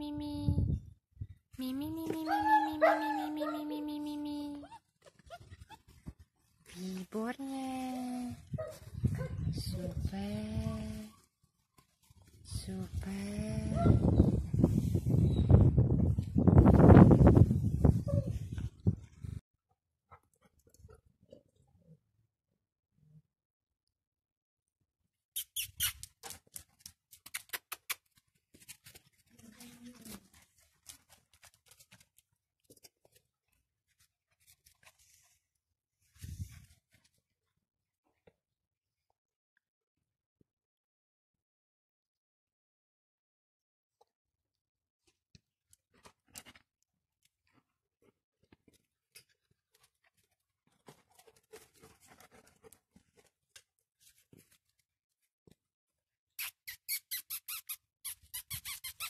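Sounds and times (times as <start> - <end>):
rustle and bump on microphone: 5.0 - 7.2, 11.8 - 19.4, 36.0 - 37.2
loud short squeaks: 25.4 - 26.1, 56.4 - 59.0
puppy claws clicking on concrete: 25.6 - 33.2.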